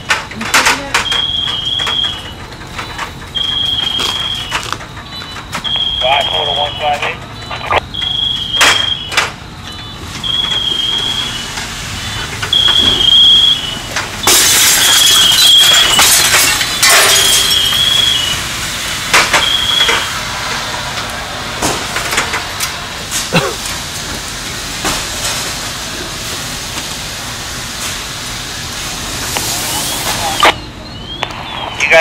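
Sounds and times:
high electronic beep: 0.9s - 16.0s, 16.8s - 18.4s, 19.3s - 20.1s
loud rushing hiss: 18.0s - 30.4s.

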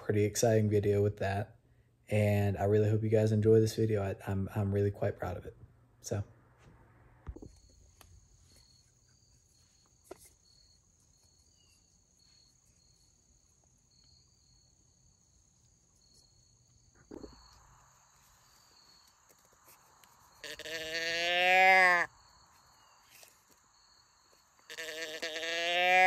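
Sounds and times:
insects chirping faintly: 6.0s - 26.0s.

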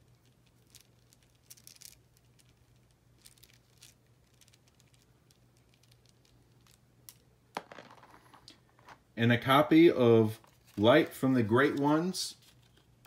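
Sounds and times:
beads knocking together: 0.0s - 9.0s
low steady hum: 0.0s - 13.0s.

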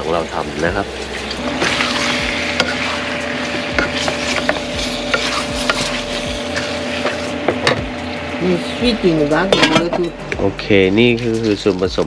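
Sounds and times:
meat sizzling in a pot: 0.0s - 12.0s
steady hum: 0.0s - 12.0s
spatula scraping a pot: 1.2s - 7.4s.

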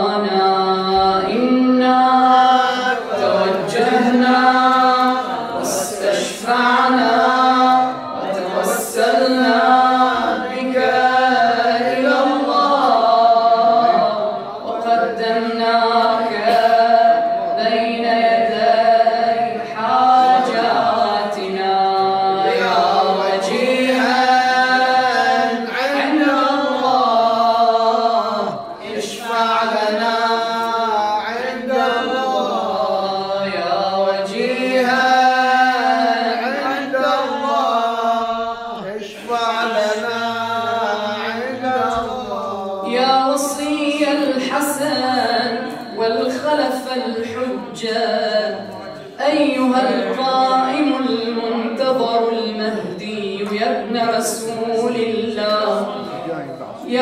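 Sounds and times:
man chanting melodically: 28.2s - 43.4s.

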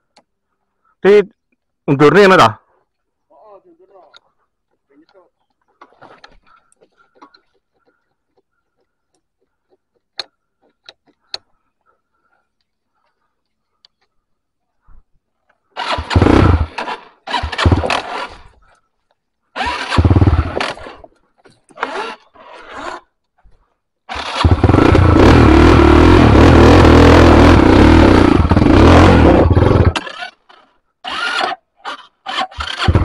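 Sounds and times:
dirt bike engine: 15.6s - 18.8s, 19.4s - 23.2s, 24.1s - 33.0s.

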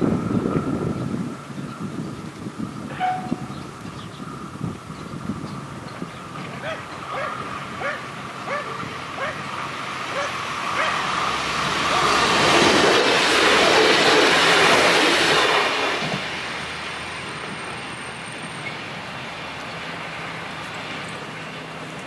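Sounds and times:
passenger train passing: 0.0s - 22.0s.

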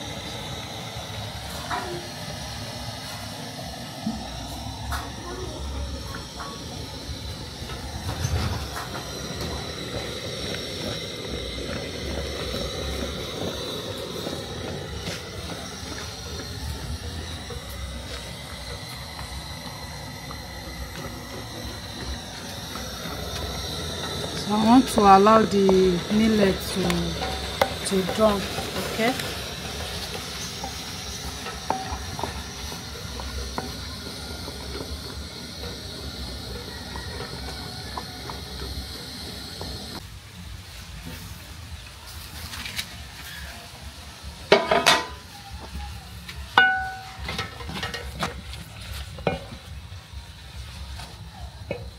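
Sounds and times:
pot cooking hiss and rumble: 0.0s - 51.9s
stirrer knocking against pot: 20.3s - 39.8s.

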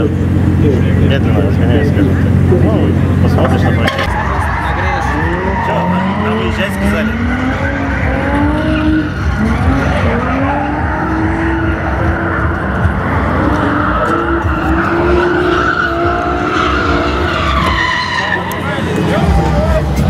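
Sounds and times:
car engines revving: 0.0s - 20.0s
tyres squealing: 8.8s - 19.1s.

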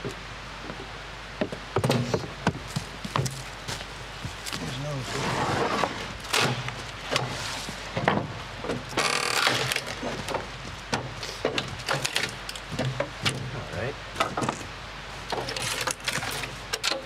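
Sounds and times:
knocks and cracks of wood: 6.2s - 13.5s, 14.2s - 14.7s, 15.3s - 17.0s.

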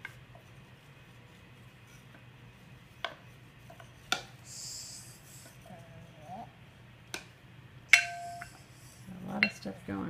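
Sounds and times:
wooden spoon stirring in plastic bowl: 0.0s - 4.4s
spoon knocking against bowl: 7.9s - 8.5s.

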